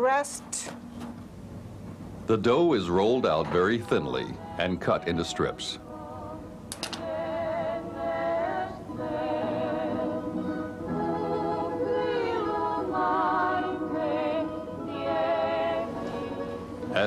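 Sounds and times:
soft musical accompaniment: 0:02.3 - 0:17.0
person singing with vibrato: 0:04.0 - 0:17.0.

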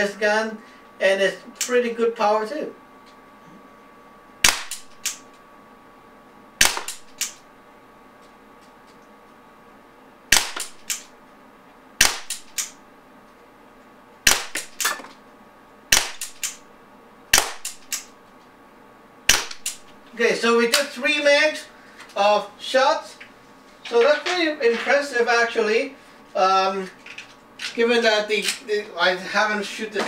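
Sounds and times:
air pistol shots popping: 0:04.4 - 0:05.3, 0:06.6 - 0:07.4, 0:10.3 - 0:11.1, 0:12.0 - 0:12.8, 0:14.2 - 0:15.0, 0:15.9 - 0:16.6, 0:17.3 - 0:18.1, 0:19.3 - 0:19.9.

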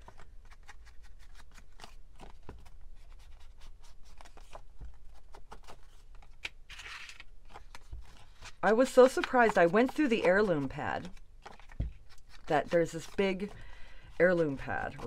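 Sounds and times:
tool scratching on paper: 0:12.3 - 0:15.0.

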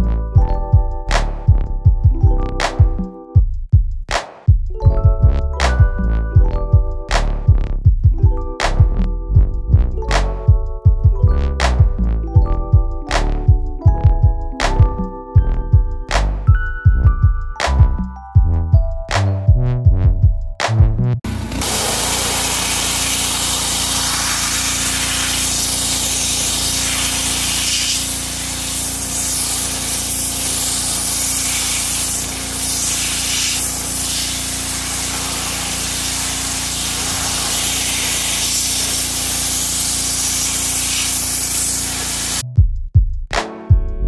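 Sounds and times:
machine humming: 0:21.3 - 0:42.4
pressure washer jet hissing: 0:21.3 - 0:42.4.

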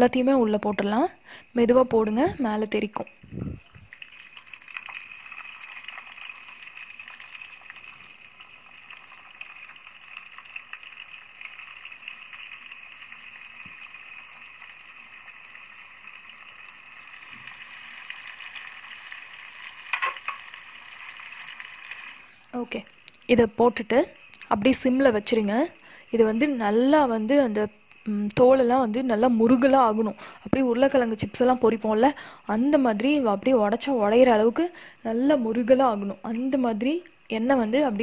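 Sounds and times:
food sizzling in hot oil: 0:00.0 - 0:38.0.

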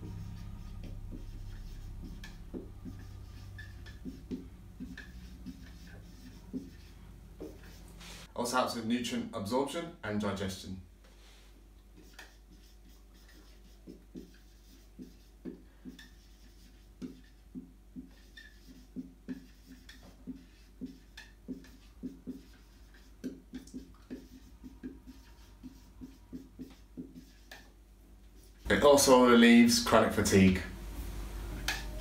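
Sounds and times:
marker writing on whiteboard: 0:00.0 - 0:08.3, 0:11.9 - 0:29.2.

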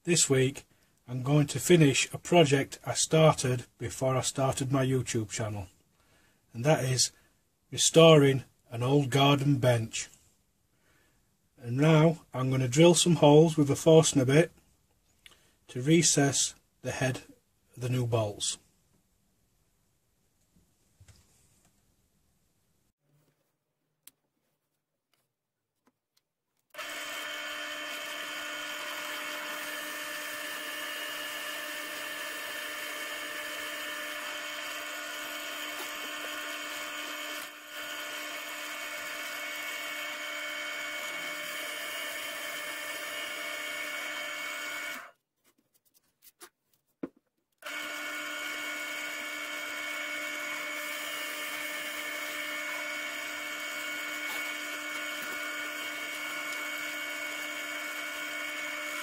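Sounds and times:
pillar drill boring wood: 0:26.7 - 0:45.1, 0:47.6 - 0:59.0.

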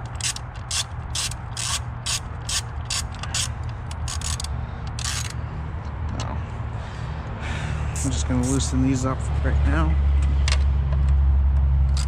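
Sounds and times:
ratchet wrench clicking: 0:00.0 - 0:05.4.

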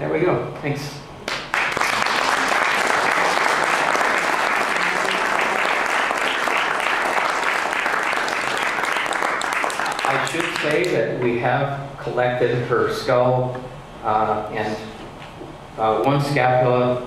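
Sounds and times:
audience applauding: 0:01.3 - 0:11.0.

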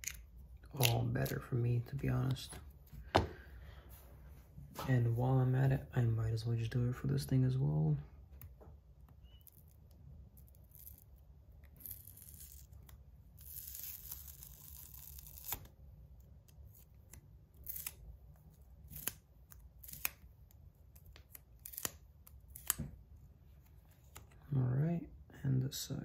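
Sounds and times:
tape peeling off metal: 0:09.4 - 0:15.7
short sharp tape rips: 0:10.4 - 0:15.7, 0:16.6 - 0:18.0, 0:18.8 - 0:20.3, 0:20.9 - 0:22.9.

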